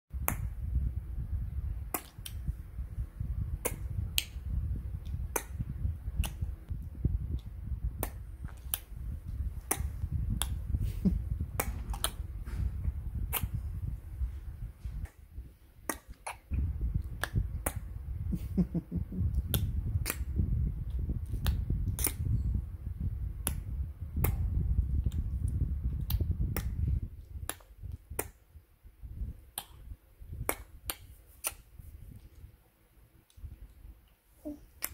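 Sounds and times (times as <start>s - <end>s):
low handling rumble: 0.6s - 15.5s
sharp tongue clicks: 1.9s - 2.5s, 5.0s - 8.9s, 9.6s - 12.2s, 13.3s - 13.6s, 15.8s - 17.9s, 19.2s - 20.3s, 21.2s - 22.3s.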